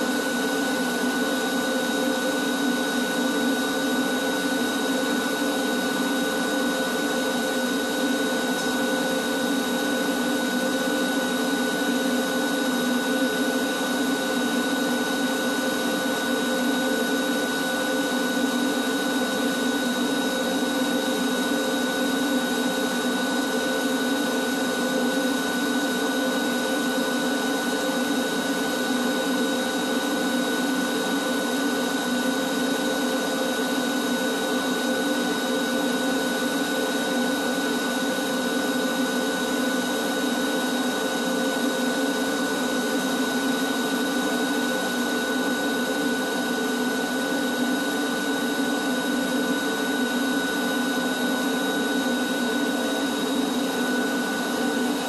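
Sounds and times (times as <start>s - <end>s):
shop vacuum running: 0.0s - 55.0s.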